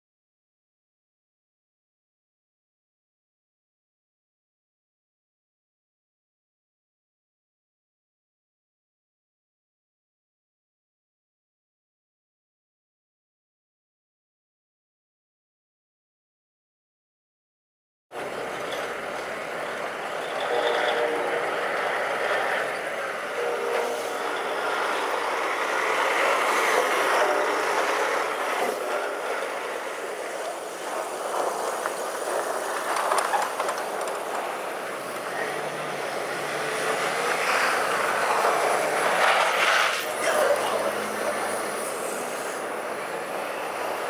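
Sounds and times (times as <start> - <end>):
cars passing: 18.2 - 44.0
front-end loader running: 18.2 - 44.0
heavy trucks running: 18.2 - 44.0.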